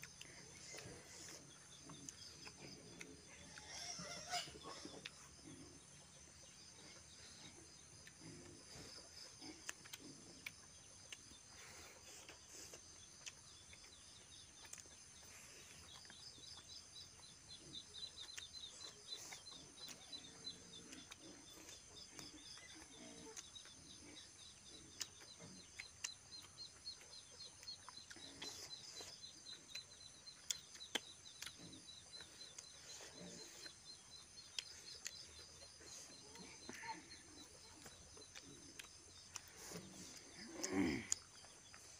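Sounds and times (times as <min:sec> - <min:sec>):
chewing and wet mouth smacks: 0:08.0 - 0:17.3, 0:18.0 - 0:24.2, 0:24.8 - 0:41.9.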